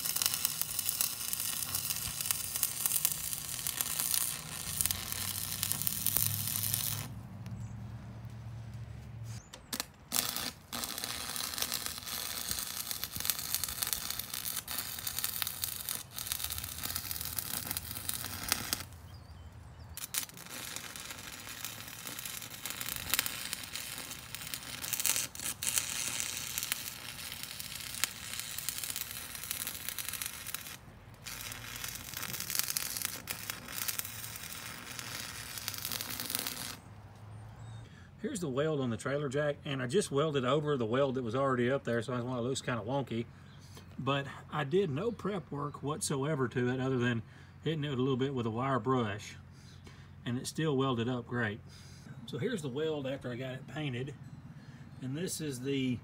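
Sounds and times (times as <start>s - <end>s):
welding arc crackling and sizzling: 0.0s - 7.6s, 9.6s - 19.2s, 20.0s - 36.9s.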